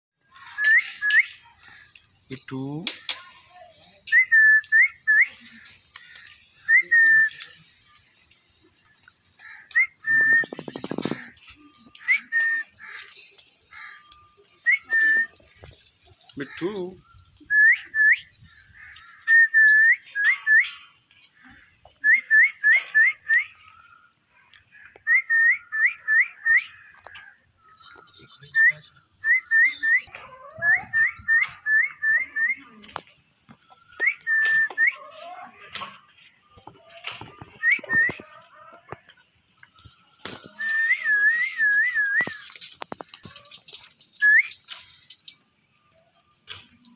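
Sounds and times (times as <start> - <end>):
parakeets whistling: 28.4 - 32.8.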